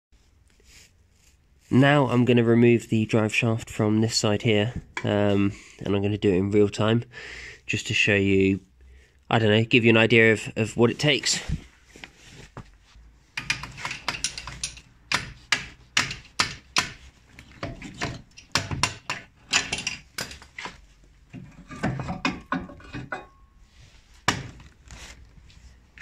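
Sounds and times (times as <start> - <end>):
metallic knocks and clunks: 13.4 - 23.5.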